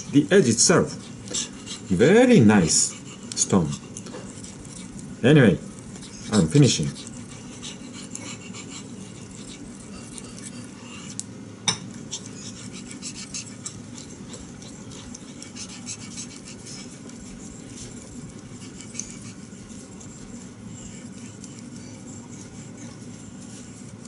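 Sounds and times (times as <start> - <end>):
knife scraping on whetstone: 5.8 - 11.2, 12.0 - 24.0.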